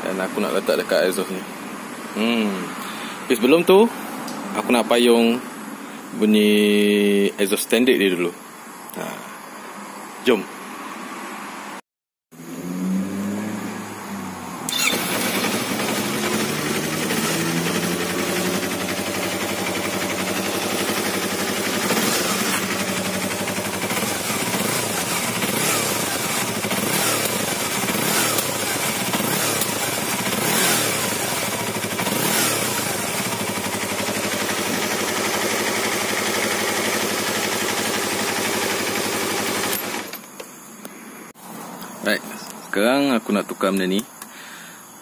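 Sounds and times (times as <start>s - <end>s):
motorcycle engine idling and revving: 12.4s - 40.4s.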